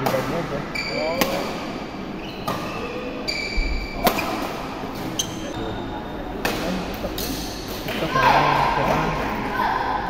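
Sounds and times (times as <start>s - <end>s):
shoes squeaking on court: 0.7s - 1.4s, 2.2s - 4.4s, 5.0s - 5.8s
rackets hitting shuttlecock: 4.0s - 5.1s.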